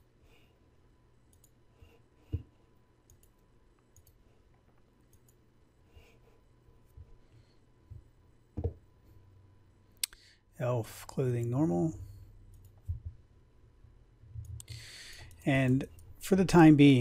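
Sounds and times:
faint low hum: 0.0s - 17.0s
computer mouse clicks: 1.3s - 1.6s, 3.1s - 5.4s, 12.5s - 13.0s.

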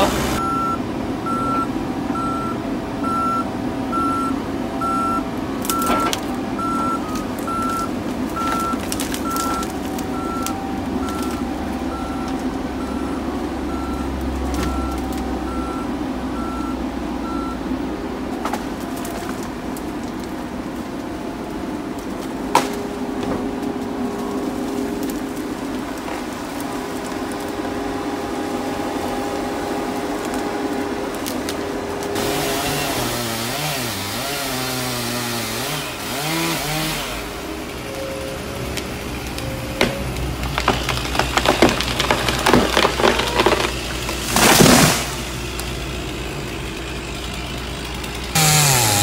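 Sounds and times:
backup alarm beeping: 0.0s - 17.6s
diesel engine and hydraulics rumble: 0.0s - 49.0s.

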